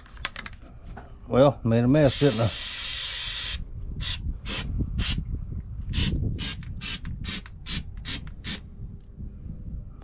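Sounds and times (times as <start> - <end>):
aerosol can spraying: 2.1 - 5.2
short aerosol spurts: 2.1 - 5.2, 5.9 - 8.6.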